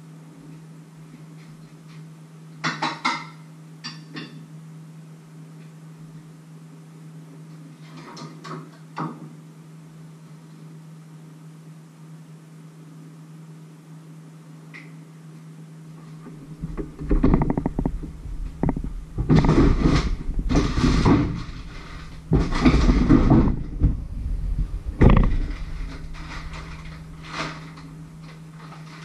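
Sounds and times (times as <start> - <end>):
low steady hum: 9.4 - 29.0
knocking and shuffling: 16.2 - 29.0
object sliding out rattling: 16.6 - 29.0
plastic bag crinkling: 16.6 - 29.0.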